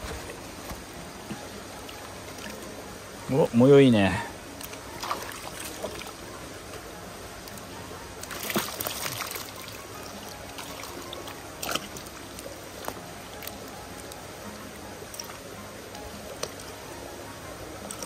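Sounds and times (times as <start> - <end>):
water running and trickling: 1.4 - 17.1
water splashes: 4.5 - 16.9.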